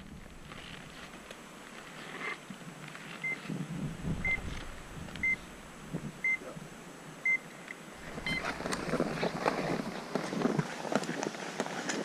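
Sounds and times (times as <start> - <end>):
faint rustling: 0.0 - 6.8, 8.0 - 12.0
short high electronic beeps: 8.2 - 8.4.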